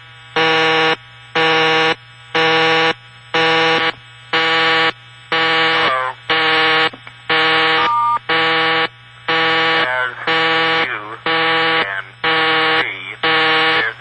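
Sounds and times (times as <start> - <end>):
telephone busy signal: 7.8 - 8.2.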